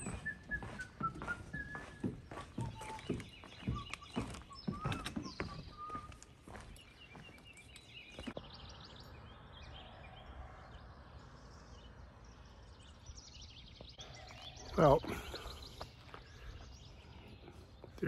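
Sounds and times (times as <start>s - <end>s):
footsteps on wooden stairs: 0.0s - 7.5s
birds chirping: 0.0s - 18.0s.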